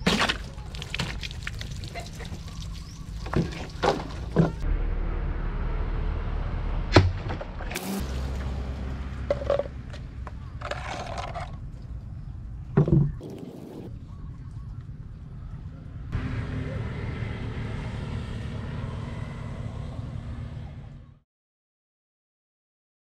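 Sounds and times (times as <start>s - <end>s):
water splashing: 0.1s - 4.6s.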